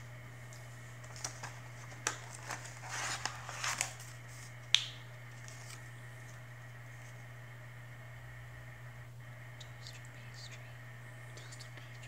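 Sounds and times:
plastic packaging crinkling: 0:01.0 - 0:04.6.

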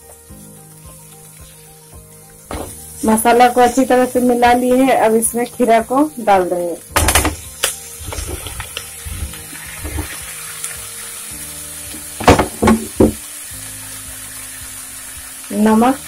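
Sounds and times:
food sizzling in a pan: 0:00.0 - 0:16.0
pieces clattering into a pan: 0:06.9 - 0:10.8, 0:11.8 - 0:13.3
sharp knocks: 0:12.2 - 0:13.2.

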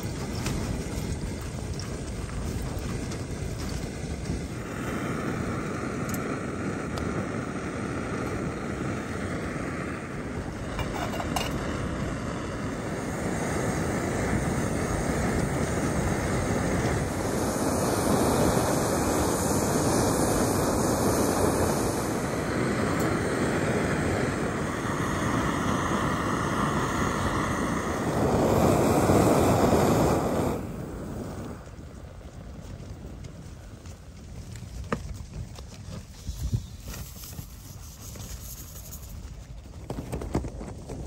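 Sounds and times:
gas stove roaring: 0:00.0 - 0:32.0
wind buffeting microphone: 0:00.0 - 0:41.0.

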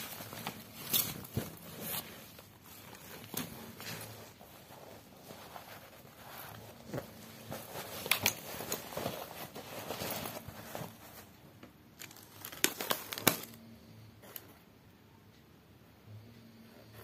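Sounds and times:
fabric bag rustling and crinkling: 0:00.0 - 0:13.6.

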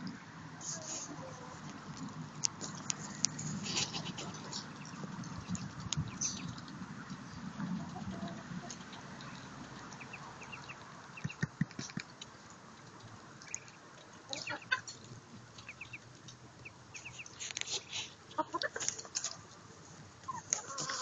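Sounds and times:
hens clucking: 0:02.6 - 0:05.6, 0:06.2 - 0:12.0, 0:14.3 - 0:15.0, 0:17.0 - 0:19.4, 0:20.2 - 0:21.0
ducklings peeping: 0:02.7 - 0:12.0, 0:13.4 - 0:18.8, 0:20.2 - 0:21.0.

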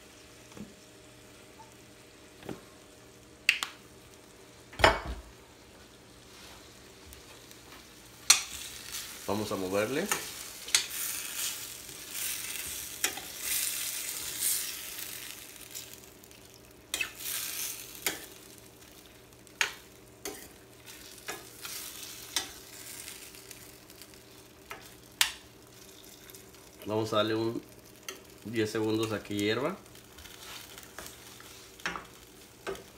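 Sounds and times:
food sizzling in a skillet: 0:05.2 - 0:32.9.

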